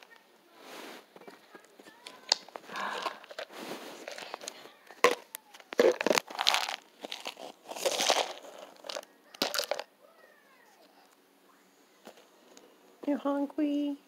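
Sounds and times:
plastic rustling: 0:00.0 - 0:09.9.

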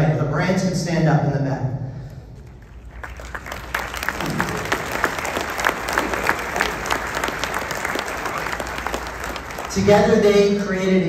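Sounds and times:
audience applauding: 0:02.4 - 0:10.8.

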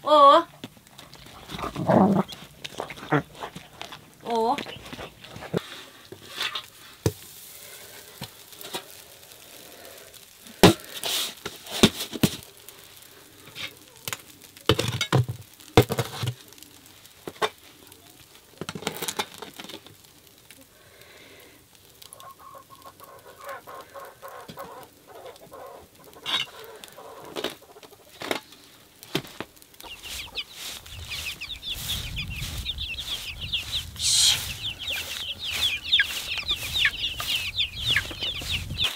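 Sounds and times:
hens and chicks clucking: 0:01.0 - 0:05.7, 0:21.9 - 0:28.6, 0:29.6 - 0:38.9.

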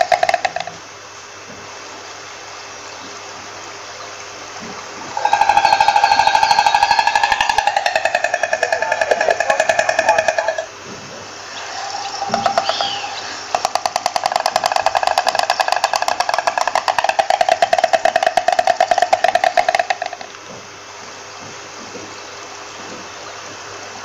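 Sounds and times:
stork clattering its bill: 0:00.0 - 0:00.8, 0:05.1 - 0:10.8, 0:11.5 - 0:20.5.

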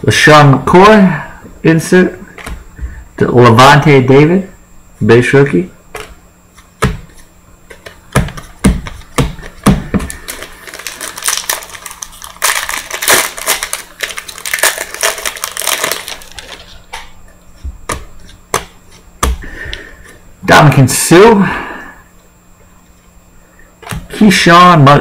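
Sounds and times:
foil wrapper tearing and crinkling: 0:10.1 - 0:16.9.

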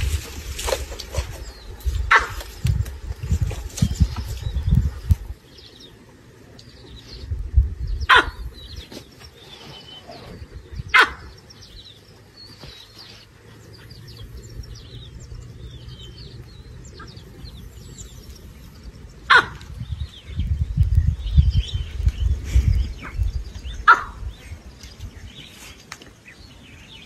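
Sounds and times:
small birds chirping: 0:00.0 - 0:27.0
baboon alarm barks: 0:02.1 - 0:02.4, 0:08.1 - 0:08.5, 0:10.9 - 0:11.4, 0:19.3 - 0:19.6, 0:23.8 - 0:24.2.

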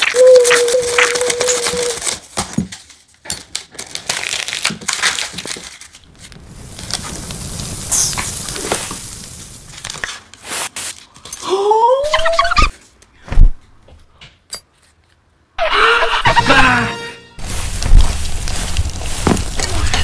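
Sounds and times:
cardboard sheet folding: 0:00.2 - 0:06.4, 0:09.8 - 0:11.2, 0:17.4 - 0:20.0
cardboard tube rolling: 0:17.4 - 0:20.0.

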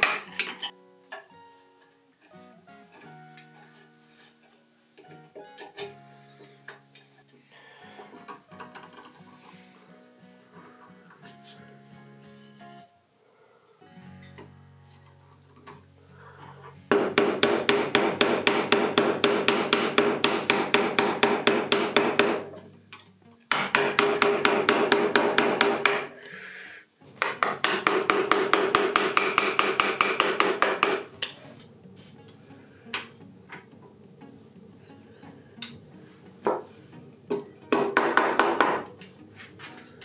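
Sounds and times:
chisel tapping into hardwood: 0:16.9 - 0:22.6, 0:23.5 - 0:26.1, 0:27.2 - 0:31.1, 0:36.4 - 0:36.7, 0:37.3 - 0:38.9.

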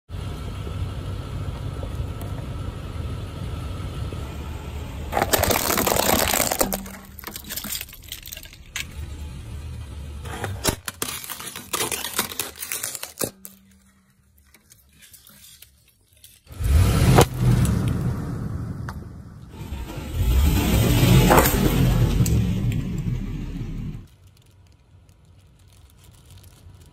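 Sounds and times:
plastic cracking under tyre: 0:04.9 - 0:09.0, 0:10.3 - 0:17.9, 0:21.0 - 0:22.4, 0:24.0 - 0:26.9
car rumbling close by: 0:08.1 - 0:10.7, 0:16.6 - 0:24.0.

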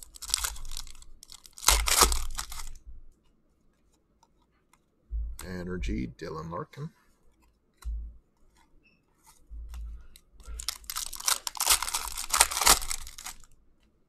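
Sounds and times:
foil wrapper crackling: 0:00.0 - 0:02.8, 0:10.4 - 0:13.6.

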